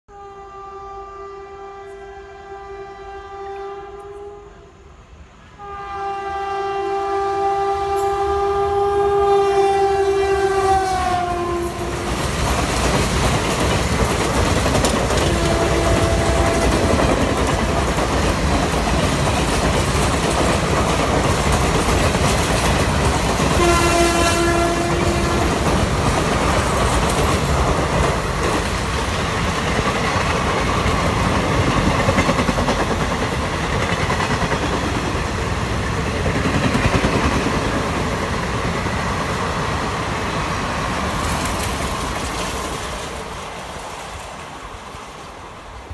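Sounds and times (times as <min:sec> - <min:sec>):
locomotive horn blasts: 0:00.1 - 0:04.8, 0:05.6 - 0:12.1, 0:15.2 - 0:16.9, 0:23.5 - 0:25.6
train coaches rushing past: 0:03.9 - 0:45.9.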